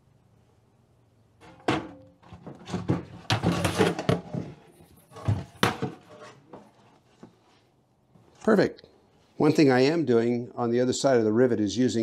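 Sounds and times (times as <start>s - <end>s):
plastic bucket knocking and scraping: 1.4s - 7.3s.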